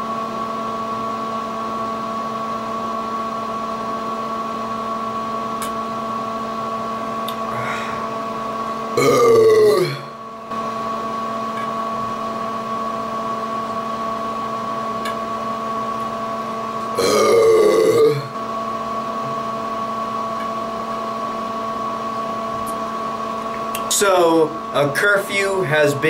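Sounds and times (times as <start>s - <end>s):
steady droning hum: 5.6s - 26.0s
man burping loudly: 9.0s - 10.2s, 16.9s - 18.4s.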